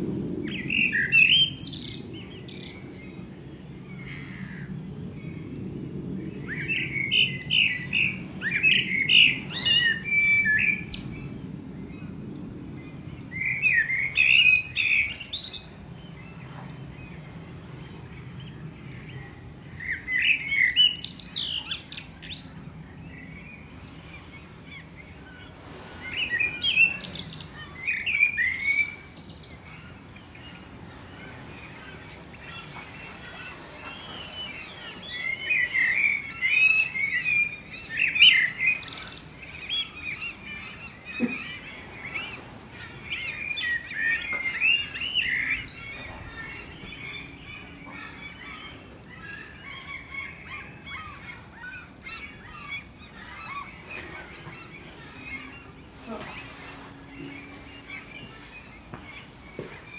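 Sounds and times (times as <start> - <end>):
blackbird singing: 0.5 - 3.2, 6.4 - 11.3, 13.3 - 16.2, 19.0 - 23.7, 26.1 - 30.7, 33.1 - 59.9.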